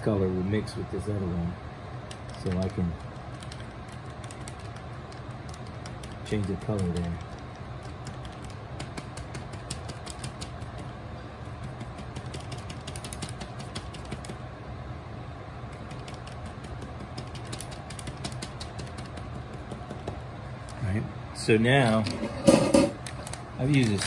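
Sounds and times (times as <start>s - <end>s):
low room hum: 0.0s - 24.0s
paintbrush tapping on paper: 8.1s - 14.4s, 15.7s - 20.2s.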